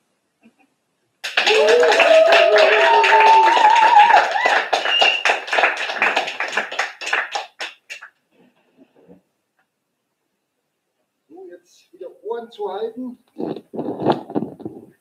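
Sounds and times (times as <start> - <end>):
small group applauding: 1.2 - 8.2
person cheering: 1.4 - 5.1.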